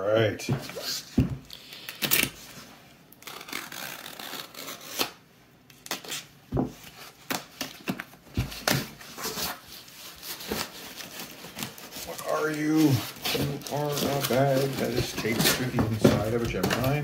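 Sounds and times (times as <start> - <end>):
knife cutting tape and card: 3.2 - 6.3
cardboard scraping rustles: 8.3 - 17.0.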